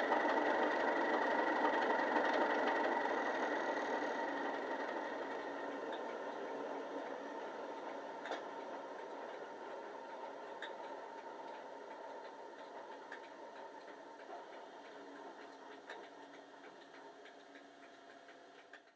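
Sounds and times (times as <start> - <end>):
faint clicks: 10.5 - 18.9.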